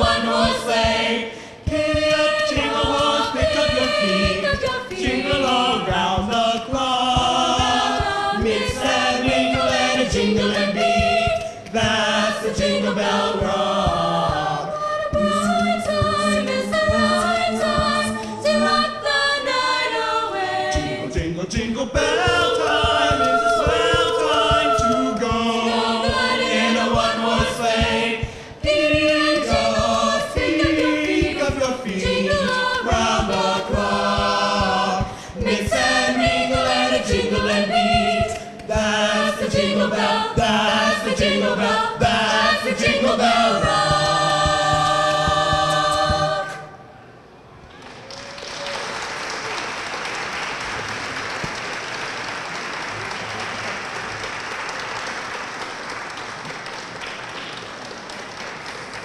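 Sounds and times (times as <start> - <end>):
choir singing a cappella: 0.0 - 47.0.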